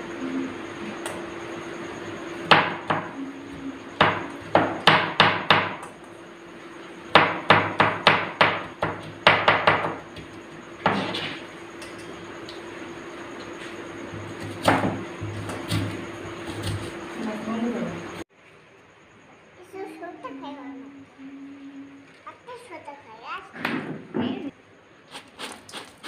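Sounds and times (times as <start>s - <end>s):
knife chopping onion on board: 7.2s - 11.4s, 14.2s - 17.1s.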